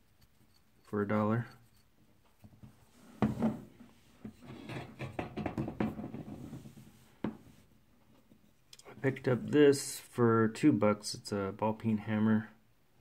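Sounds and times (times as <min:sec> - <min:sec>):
small knocks and rubbing: 0:00.0 - 0:08.8
tools knocking on a tabletop: 0:02.6 - 0:03.6, 0:04.2 - 0:06.5.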